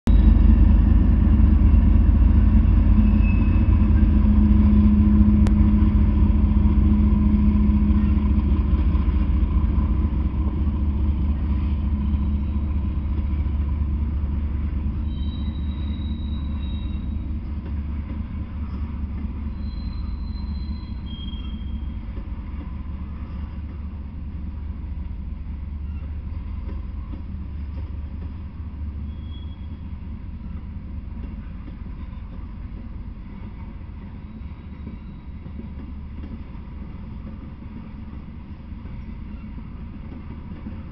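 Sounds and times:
freight train rumbling past: 0:00.1 - 0:40.9.

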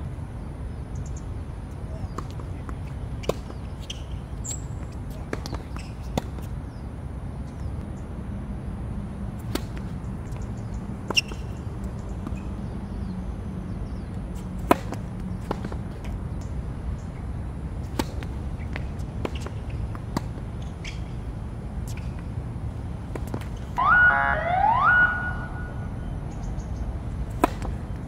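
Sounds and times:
steady low rumble: 0:00.0 - 0:28.0
racket hitting tennis ball: 0:09.4 - 0:10.0, 0:14.4 - 0:16.1, 0:17.8 - 0:20.5, 0:23.0 - 0:23.7, 0:27.3 - 0:28.0.

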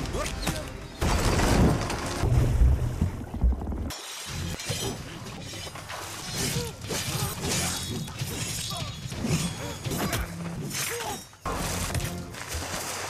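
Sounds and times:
splashing water: 0:11.5 - 0:13.0.

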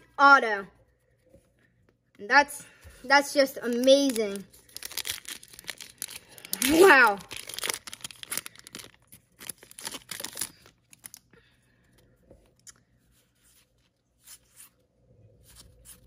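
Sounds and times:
cards rustling as handled: 0:03.0 - 0:11.3
card pack wrapper crinkling and tearing: 0:03.6 - 0:11.3.

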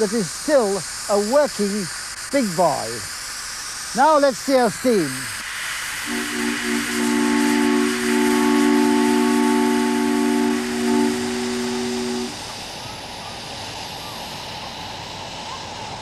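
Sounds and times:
steam hissing: 0:00.0 - 0:16.0
chime steam whistle: 0:05.9 - 0:13.0.

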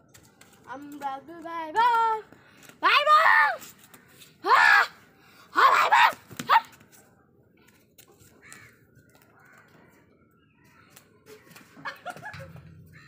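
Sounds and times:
faint caws: 0:08.4 - 0:08.8.

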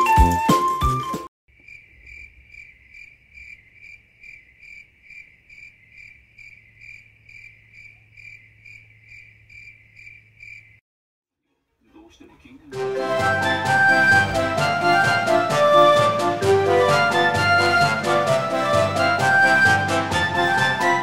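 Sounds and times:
cricket chirping: 0:01.5 - 0:10.8.

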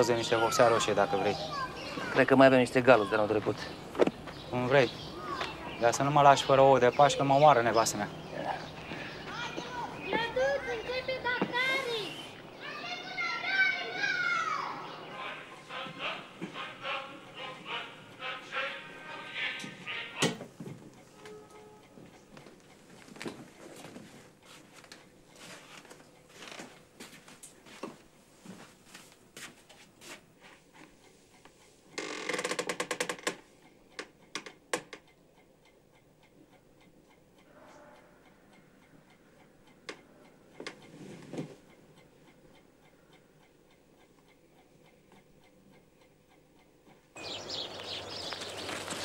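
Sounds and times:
steady outdoor hiss: 0:00.0 - 0:21.1, 0:46.7 - 0:49.0.

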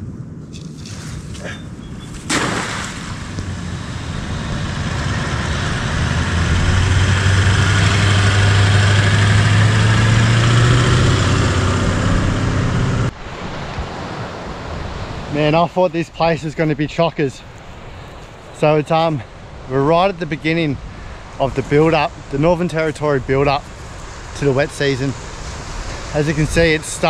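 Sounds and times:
wind noise: 0:00.0 - 0:15.4
vehicle engine driving on sand: 0:01.4 - 0:13.2, 0:19.8 - 0:27.0.

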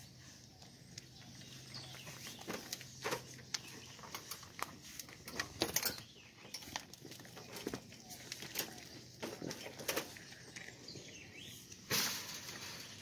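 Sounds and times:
goats chewing and crunching: 0:00.0 - 0:11.9.

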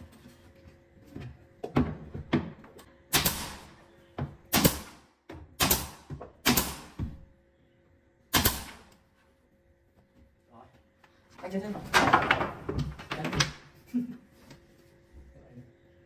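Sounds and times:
nail gun firing: 0:03.1 - 0:03.7, 0:04.5 - 0:05.0, 0:05.6 - 0:07.0, 0:08.3 - 0:08.9.

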